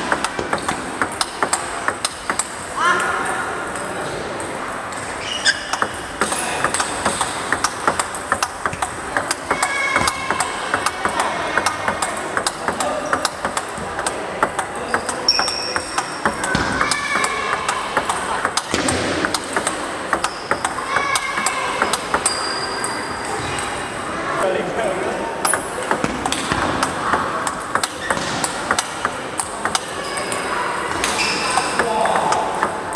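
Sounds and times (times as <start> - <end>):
table tennis ball hits: 0.0 - 2.6, 5.5 - 23.0, 25.4 - 32.9
ball bouncing on table: 5.5 - 22.3.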